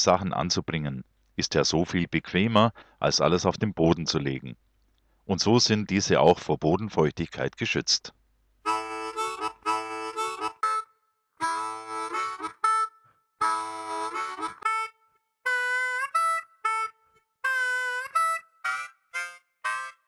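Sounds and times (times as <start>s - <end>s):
harmonica music: 8.6s - 20.0s.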